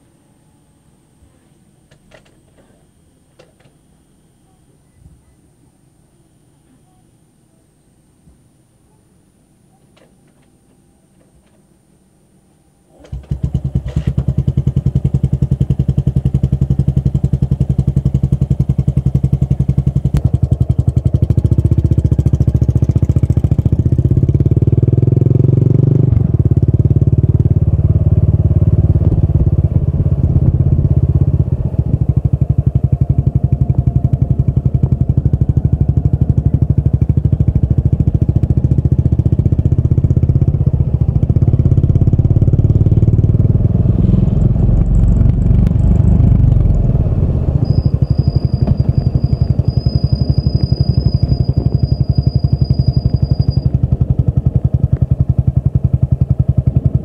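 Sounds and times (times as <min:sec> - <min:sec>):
motorcycle engine exhaust pulses: 0:13.0 - 0:57.0.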